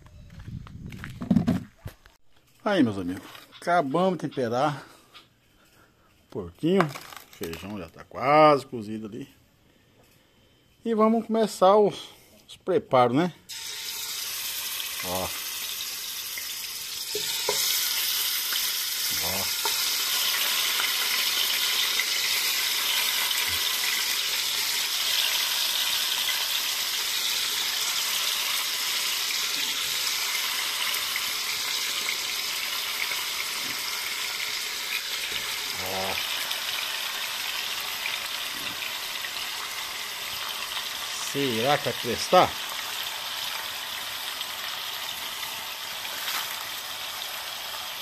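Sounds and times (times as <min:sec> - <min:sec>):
meat sizzling in hot fat: 0:13.5 - 0:48.0.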